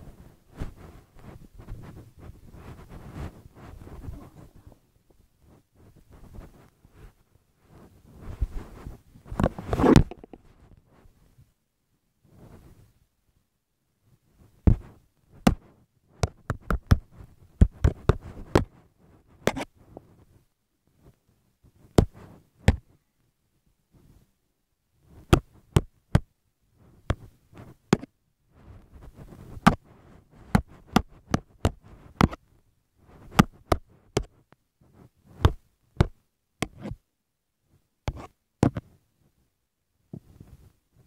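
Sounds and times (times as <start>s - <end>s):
soft rustling: 0.0s - 11.6s, 12.2s - 13.1s, 26.8s - 27.9s, 28.5s - 37.1s, 40.1s - 41.0s.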